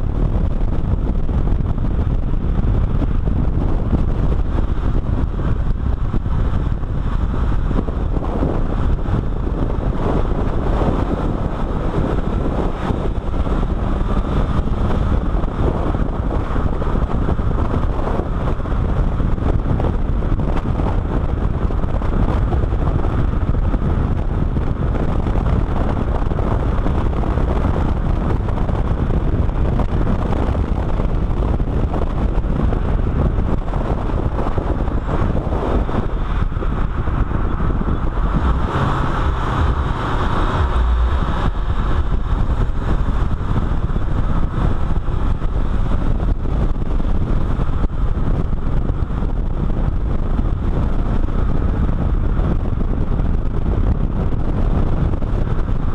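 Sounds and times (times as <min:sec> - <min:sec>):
car engine and road noise: 0:00.0 - 0:55.9
wind buffeting microphone: 0:00.0 - 0:55.9.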